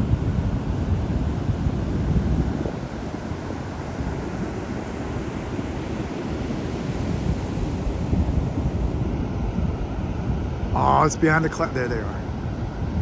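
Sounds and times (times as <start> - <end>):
wind on microphone: 0.0 - 13.0
ocean surf: 2.5 - 12.9.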